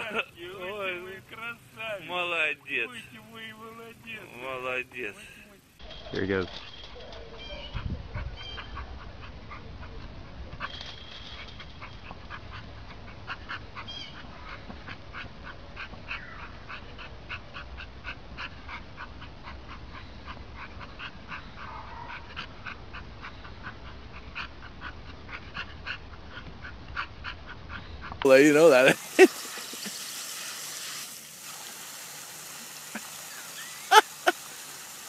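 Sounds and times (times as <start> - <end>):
dog panting: 7.6 - 28.7.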